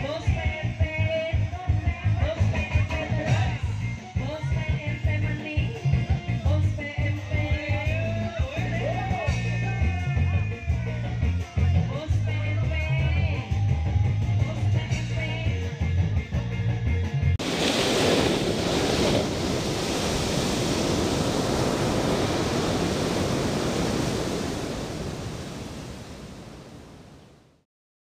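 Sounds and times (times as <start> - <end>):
music with heavy bass: 0.0 - 17.4
rushing static-like noise: 17.4 - 27.6.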